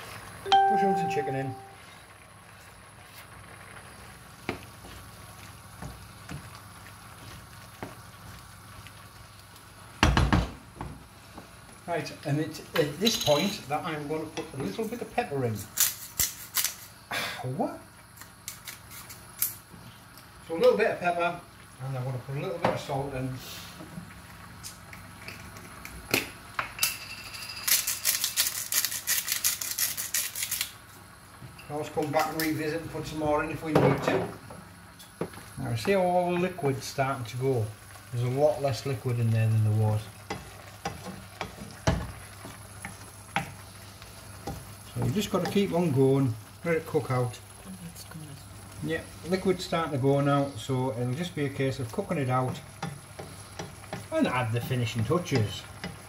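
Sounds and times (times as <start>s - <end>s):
steady hiss of simmering: 0.0s - 56.0s
wooden spoon stirring in pan: 2.5s - 10.0s, 10.6s - 15.8s, 34.0s - 56.0s.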